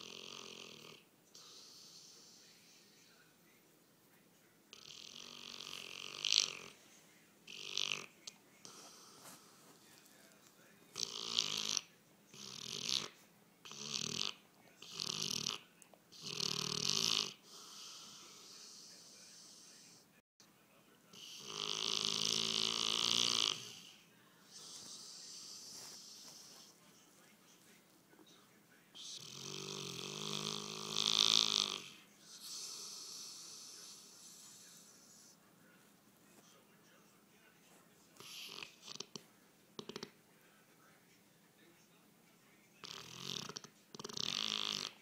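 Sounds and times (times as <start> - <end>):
dog snoring: 0.0 - 2.8, 4.7 - 6.8, 7.5 - 10.0, 10.9 - 20.0, 21.1 - 26.8, 29.0 - 35.4, 38.2 - 40.2, 42.8 - 45.0
dog breathing softly: 8.6 - 10.7, 23.7 - 27.8.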